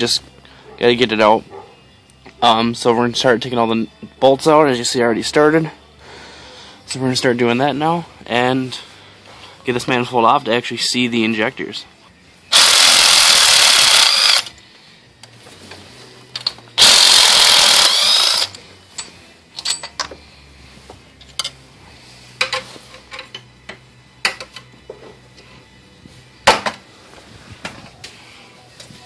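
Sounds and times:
power tool running: 12.5s - 14.5s, 16.8s - 18.6s.

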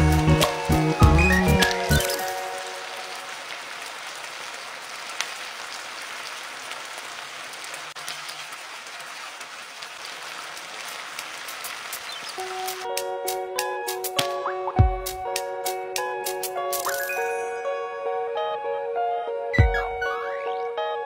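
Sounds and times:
chicken wings sizzling in a pan: 1.9s - 12.9s.

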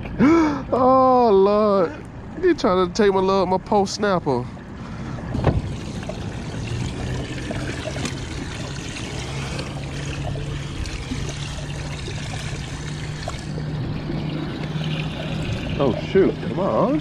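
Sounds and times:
low steady hum: 0.0s - 17.0s
water trickling and pouring: 4.1s - 17.0s.

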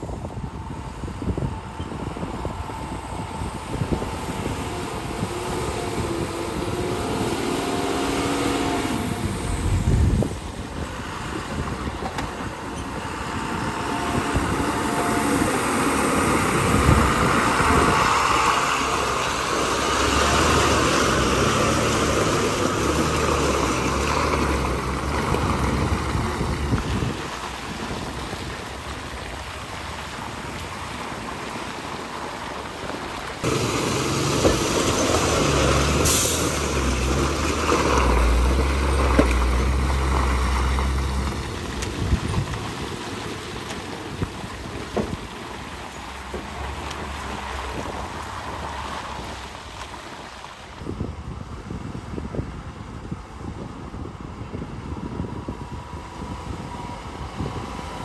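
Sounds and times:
truck engines labouring: 0.0s - 58.0s
loud low rumble: 0.4s - 10.9s.

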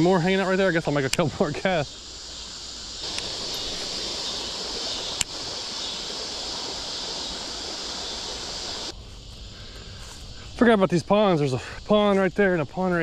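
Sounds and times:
creek water over rocks: 3.0s - 8.9s.

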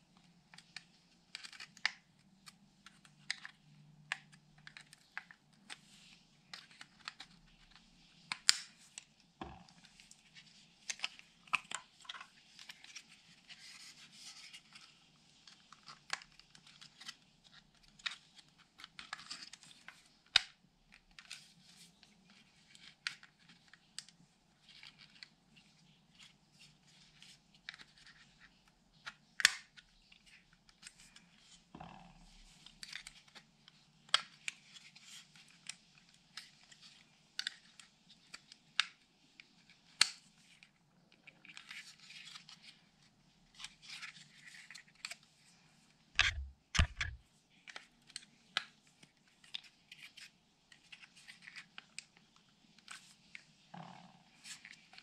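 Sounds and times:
plastic parts clicking: 46.2s - 48.7s.

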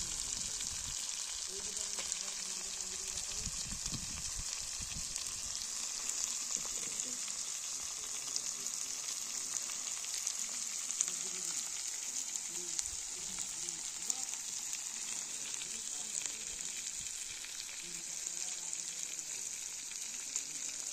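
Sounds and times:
fish sizzling in oil: 0.0s - 20.9s.

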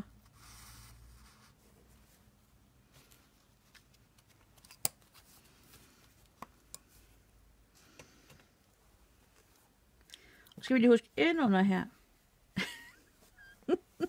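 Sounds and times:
paper and thread rustling: 0.2s - 7.2s.

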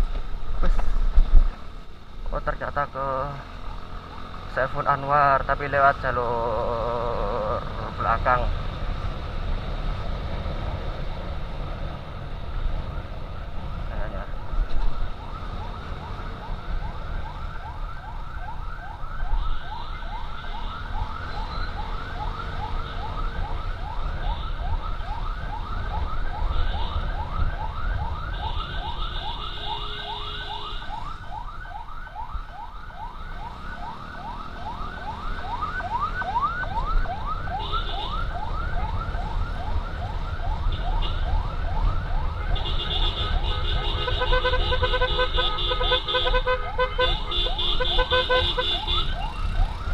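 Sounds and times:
motorcycle engine and wind rumble: 0.0s - 2.3s, 6.2s - 28.8s, 30.8s - 44.0s, 49.0s - 49.9s
siren yelping: 12.5s - 42.6s, 44.2s - 49.9s.

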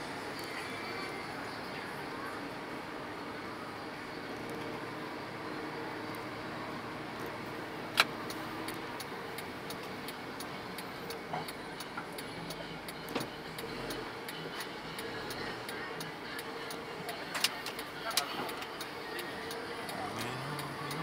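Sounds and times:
passers-by: 0.0s - 21.0s
traffic hum: 0.0s - 21.0s
light ticking: 7.2s - 21.0s.

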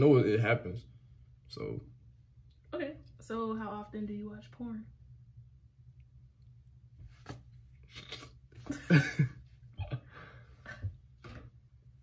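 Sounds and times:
soft breathy laughter: 8.6s - 11.0s.

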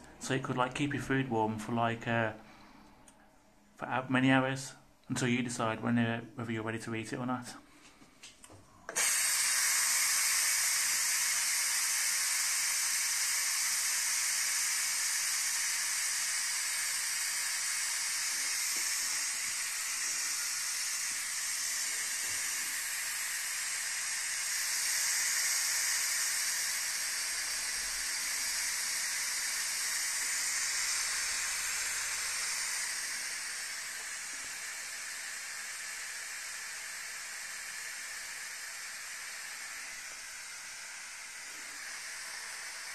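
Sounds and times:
steam hissing from pressure cooker: 8.9s - 42.9s.

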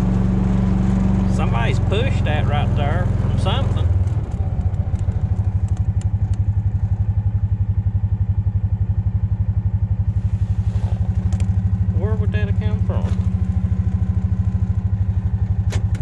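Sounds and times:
utility vehicle engine running: 0.0s - 16.0s.

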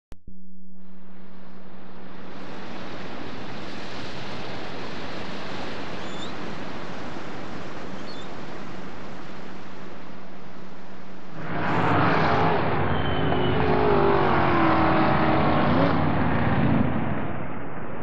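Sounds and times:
low hum: 0.2s - 18.0s
steady hiss: 1.1s - 11.4s
faint chirps: 6.0s - 6.4s, 8.0s - 8.3s.

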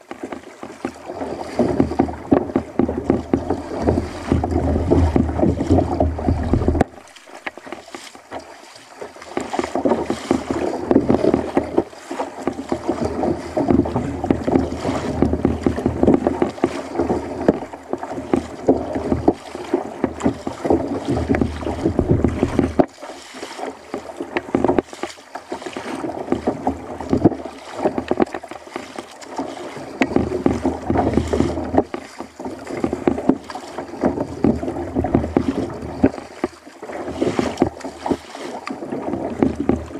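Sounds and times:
kayak paddle splashing: 0.0s - 39.9s
water washing against hull: 0.0s - 39.9s
wind rumble on microphone: 1.4s - 7.0s, 12.8s - 22.9s, 29.9s - 32.0s.

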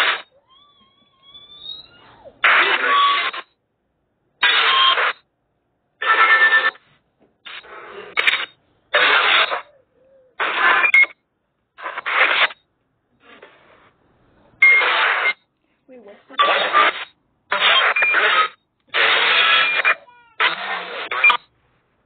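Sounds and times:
bursts of radio static: 0.0s - 0.3s, 2.4s - 3.5s, 4.4s - 5.3s, 6.0s - 11.2s, 11.8s - 14.0s, 14.6s - 15.5s, 16.2s - 21.5s.

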